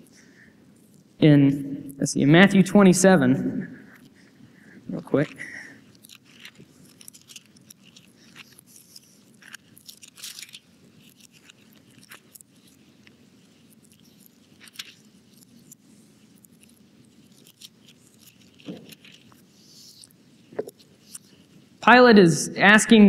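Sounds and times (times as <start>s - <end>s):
low room noise: 0.0s - 23.0s
pages being turned: 5.0s - 21.7s.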